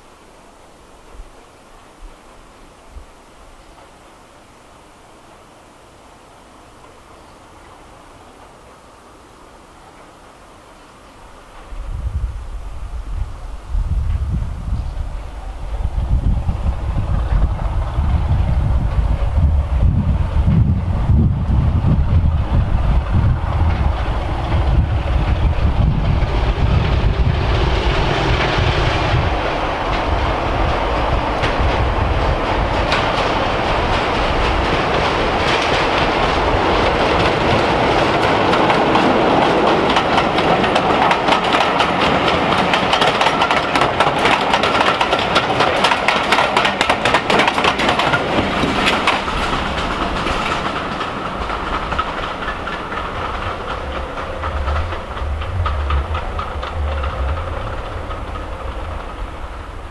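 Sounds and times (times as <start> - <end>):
diesel train passing: 0.0 - 59.9
wheels clicking over rail joints: 15.9 - 59.9.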